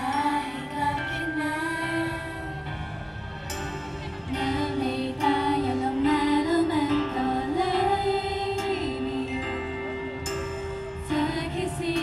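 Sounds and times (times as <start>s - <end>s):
live pop music: 0.0s - 12.0s
women singing held notes: 4.1s - 9.8s, 11.0s - 12.0s.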